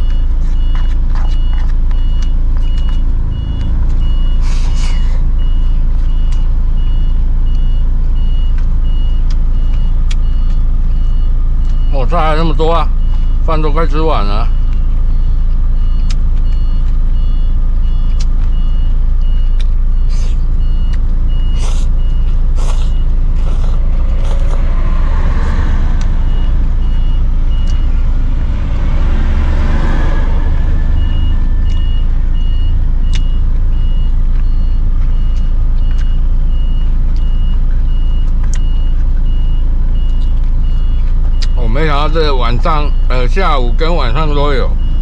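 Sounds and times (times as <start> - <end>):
low rumble of road traffic: 0.0 - 45.0
vehicle warning beep: 0.0 - 45.0
vehicle passing: 22.5 - 33.1.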